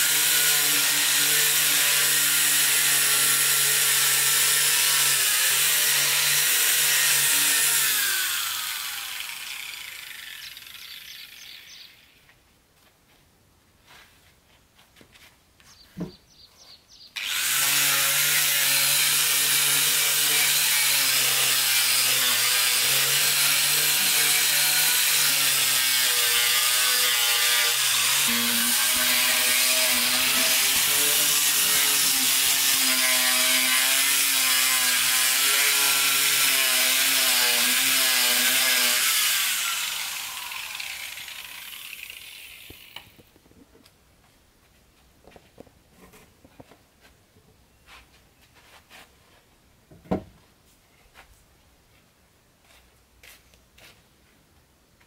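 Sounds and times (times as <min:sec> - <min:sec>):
power sander on wood: 0:00.0 - 0:12.0, 0:17.2 - 0:43.3
small knocks and thump: 0:15.9 - 0:16.2, 0:49.9 - 0:50.4.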